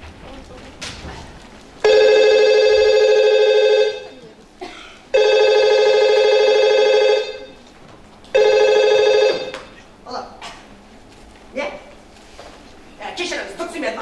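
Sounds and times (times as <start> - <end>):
telephone ringing: 1.8 - 4.2, 5.1 - 7.6, 8.4 - 9.7.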